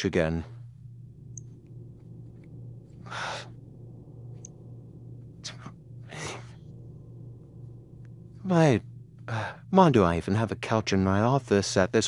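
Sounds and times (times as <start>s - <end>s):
steady low hum: 0.0s - 12.0s
person breathing and sighing: 3.0s - 3.6s, 5.4s - 6.6s.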